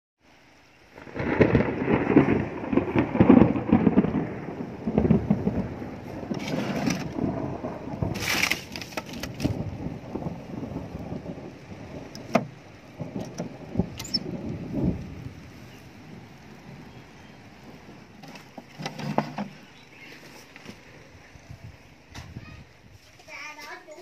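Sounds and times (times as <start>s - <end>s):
wind buffeting microphone: 1.0s - 18.7s, 20.8s - 23.0s
short hissing rustles: 18.3s - 21.0s.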